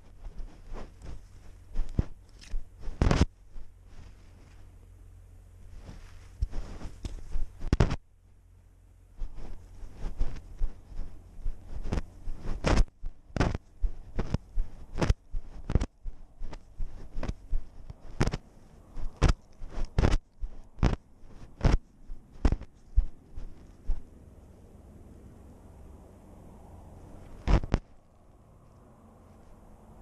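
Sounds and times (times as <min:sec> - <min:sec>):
cat footsteps in dry grass: 0:00.0 - 0:24.5.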